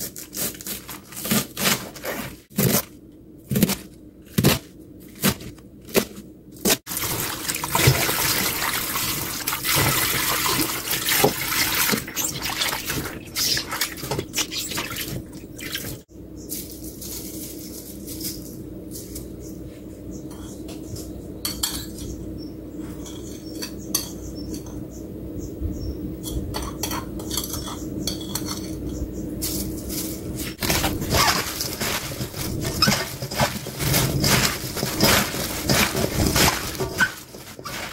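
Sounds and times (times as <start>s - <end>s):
cabbage clattering in metal bowl: 0.3s - 2.9s, 3.5s - 16.0s, 29.4s - 37.9s
running water: 6.9s - 16.0s.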